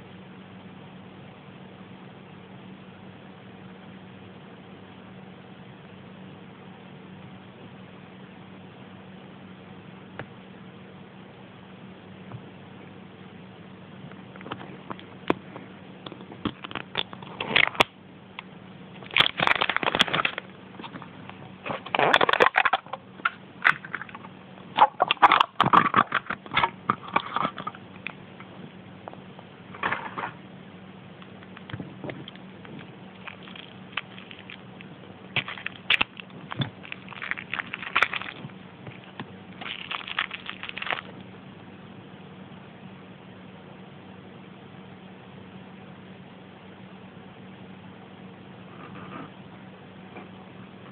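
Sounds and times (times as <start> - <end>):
plastic and foil crinkling: 19.0 - 21.0, 21.7 - 23.0, 31.5 - 41.2.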